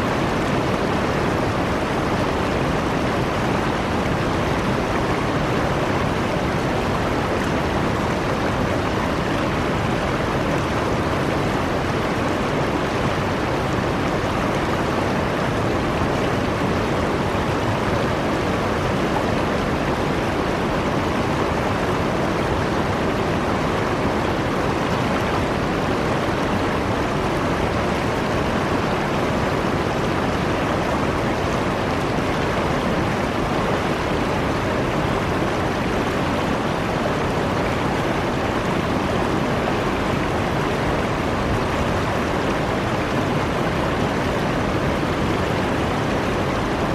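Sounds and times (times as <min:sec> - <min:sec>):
water rushing over stones: 0:00.0 - 0:46.9.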